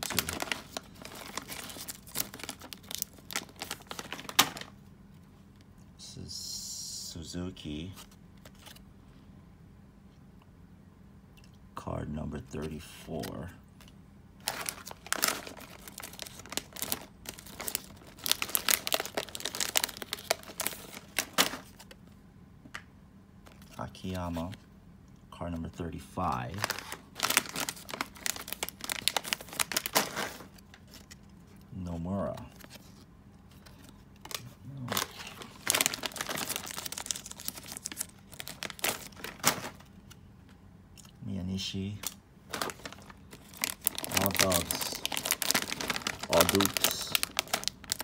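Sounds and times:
plastic bag crinkling: 0.0s - 4.7s, 14.4s - 22.0s, 26.3s - 31.2s, 33.5s - 40.1s, 42.0s - 48.0s.

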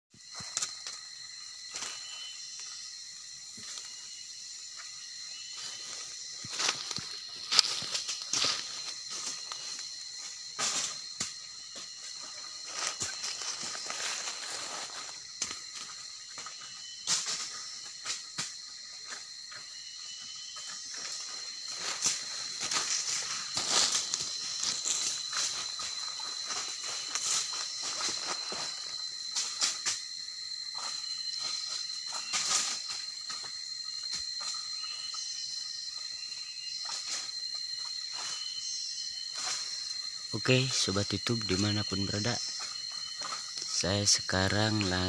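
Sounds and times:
insects chirring: 0.1s - 45.0s
dry leaves crackling underfoot: 5.6s - 11.2s, 11.8s - 15.9s, 20.9s - 29.3s.

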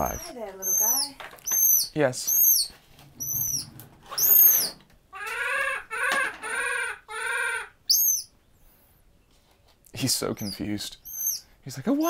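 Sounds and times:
baby monkey chirps: 0.0s - 8.4s, 10.4s - 11.5s
baby monkey wavering cries: 0.0s - 8.4s, 11.0s - 11.4s.

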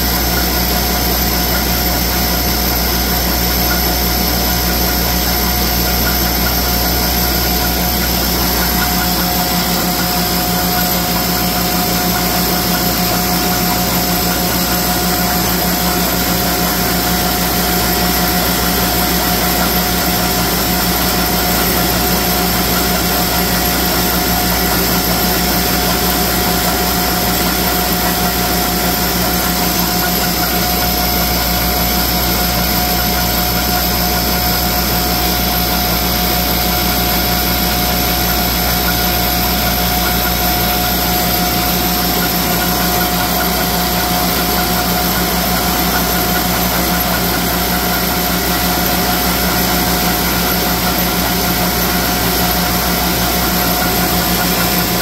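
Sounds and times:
thread rolling machine running: 0.0s - 55.0s.

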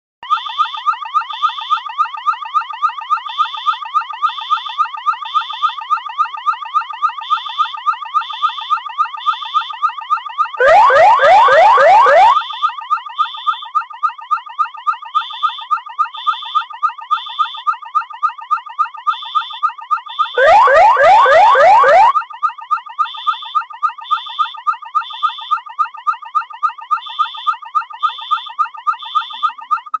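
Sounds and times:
electronic alarm siren warbling: 0.2s - 30.0s
loud sweeping siren bursts: 9.2s - 13.7s, 20.0s - 22.2s
high beeps: 10.6s - 22.2s.

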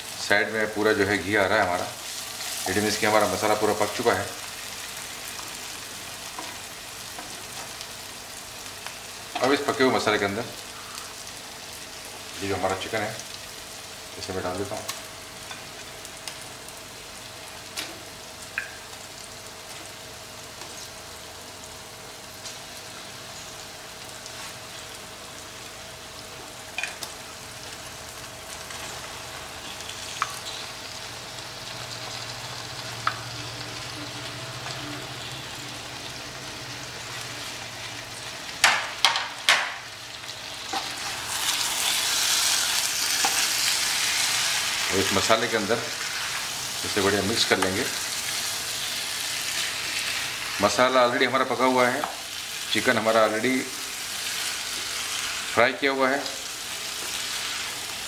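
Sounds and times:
masala sizzling in a pan: 0.0s - 58.0s
stir-frying: 0.0s - 58.0s.

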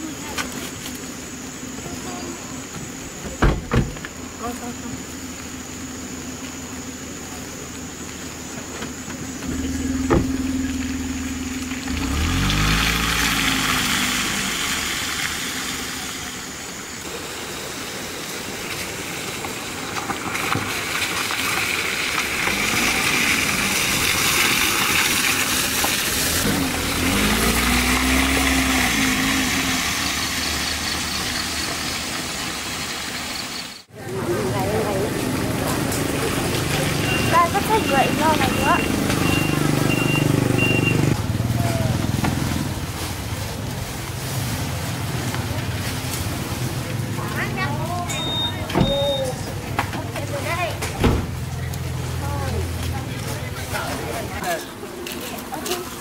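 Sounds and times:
wind or road noise hiss: 0.0s - 56.0s
vehicle engine speeding up: 9.4s - 16.6s, 22.3s - 32.8s, 34.7s - 47.6s.

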